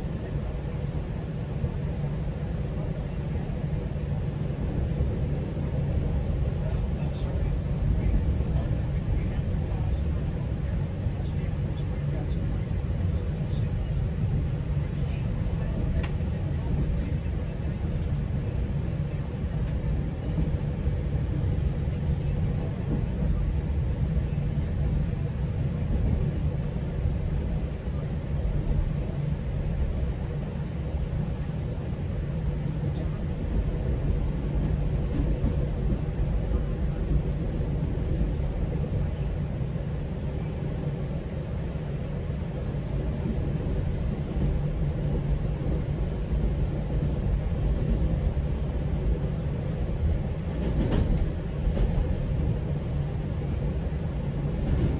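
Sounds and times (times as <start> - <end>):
train rumbling on track: 0.0 - 54.9.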